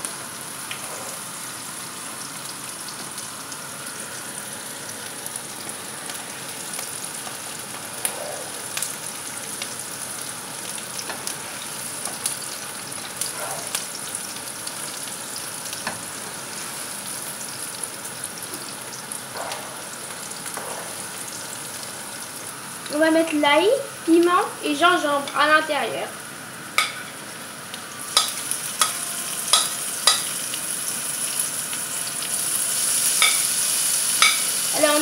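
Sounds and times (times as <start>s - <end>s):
onions sizzling in oil: 0.0s - 35.0s.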